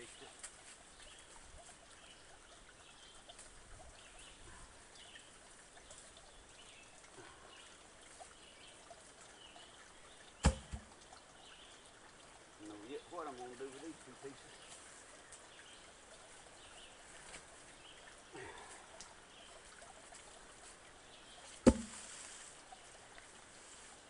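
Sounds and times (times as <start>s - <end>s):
log thumping on ground: 10.4s - 10.9s, 21.6s - 22.1s
small knock: 10.4s - 10.9s, 21.6s - 22.0s.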